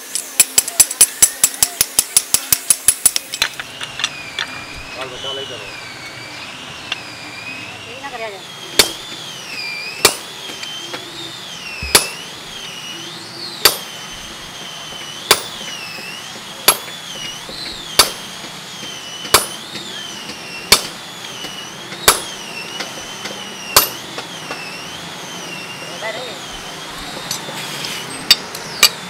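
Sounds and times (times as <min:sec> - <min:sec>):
hammer striking metal on anvil: 0:00.0 - 0:03.4, 0:08.8 - 0:09.0, 0:10.0 - 0:10.3, 0:11.8 - 0:12.2, 0:13.6 - 0:13.9, 0:15.3 - 0:15.7, 0:16.6 - 0:16.9, 0:18.0 - 0:18.2, 0:19.2 - 0:19.6, 0:20.7 - 0:21.0, 0:22.0 - 0:22.4, 0:23.8 - 0:24.0
high wavering whine: 0:00.0 - 0:29.0.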